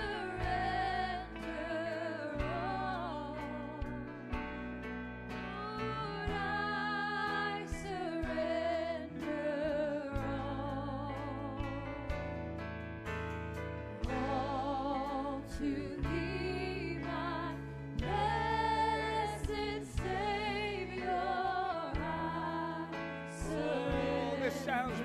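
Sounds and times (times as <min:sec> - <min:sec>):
worship band playing: 0:00.0 - 0:25.0
person singing with vibrato: 0:23.4 - 0:25.0.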